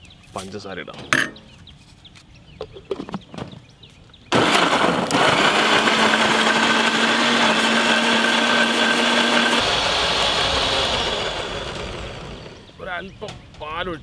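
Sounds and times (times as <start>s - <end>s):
mixer grinder motor running: 4.3s - 12.7s.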